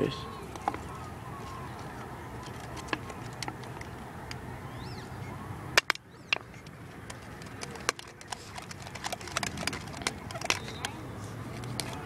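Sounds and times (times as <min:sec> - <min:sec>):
sharp close clicks and knocks: 0:05.8 - 0:11.0.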